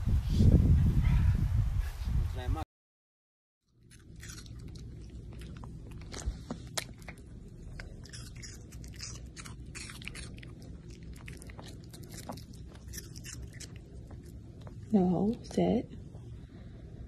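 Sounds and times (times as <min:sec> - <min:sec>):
puppy chewing clicks and crunches: 0:03.7 - 0:15.4
steady low hum: 0:03.7 - 0:17.0.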